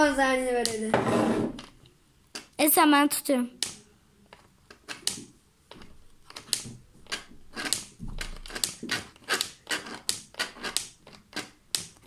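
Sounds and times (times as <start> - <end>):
plastic game pieces clicking: 3.6 - 12.0.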